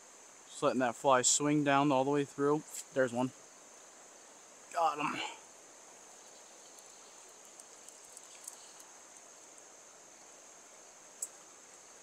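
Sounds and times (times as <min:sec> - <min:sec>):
insect chirring: 0:00.0 - 0:12.0
soft ticks: 0:11.2 - 0:11.8.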